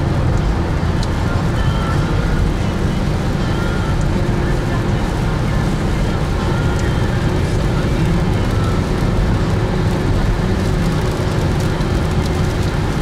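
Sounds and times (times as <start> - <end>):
low road rumble: 0.0 - 13.0
rain hitting car: 0.0 - 13.0
tyres hissing on wet asphalt: 0.0 - 13.0.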